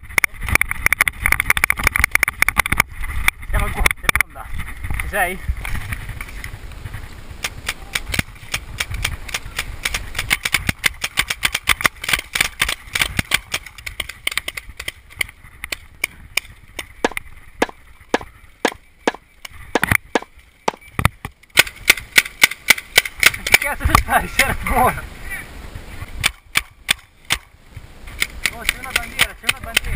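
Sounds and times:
paintball marker shots: 7.4 - 24.0, 26.2 - 27.5, 28.1 - 29.9.

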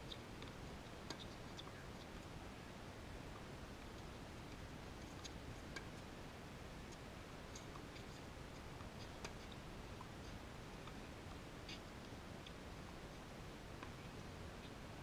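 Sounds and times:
faint outdoor background noise: 0.0 - 15.0
soft ticks: 3.8 - 6.1, 6.9 - 8.2.

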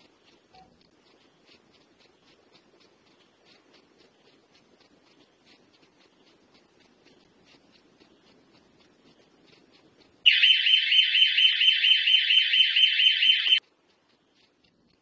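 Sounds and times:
pulsing electronic alarm siren: 10.3 - 13.6.

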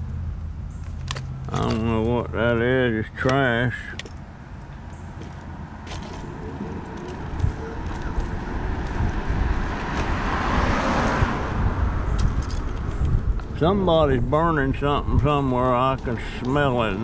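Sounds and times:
tyre and road noise: 0.0 - 17.0
car passing: 3.7 - 17.0.

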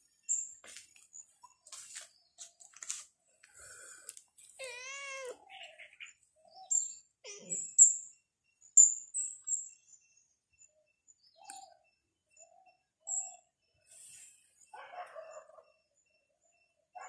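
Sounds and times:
cat meowing: 4.6 - 5.9.

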